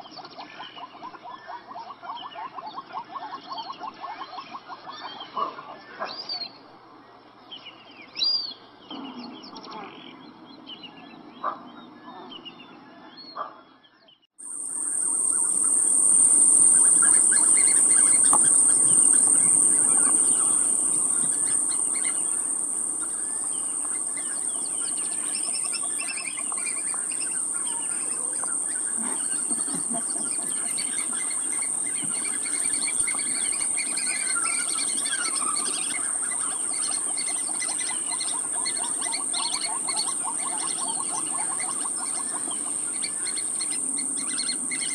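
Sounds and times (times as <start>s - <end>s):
birds chirping: 14.5s - 44.9s
loud high-pitched hiss: 14.5s - 44.9s.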